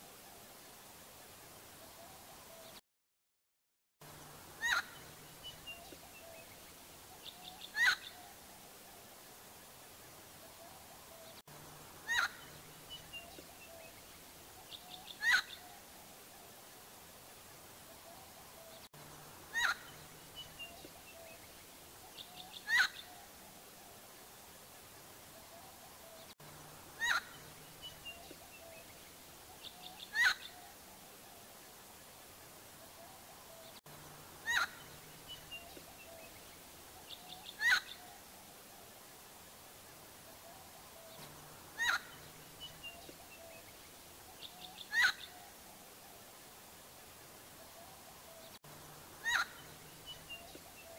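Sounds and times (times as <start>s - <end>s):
bird harsh calls: 4.6s - 6.5s, 7.2s - 8.4s, 12.0s - 13.9s, 14.6s - 15.8s, 18.0s - 21.4s, 22.1s - 23.3s, 26.9s - 28.8s, 29.6s - 30.7s, 34.4s - 36.4s, 37.1s - 38.2s, 40.4s - 43.6s, 44.4s - 45.5s, 49.2s - 50.9s.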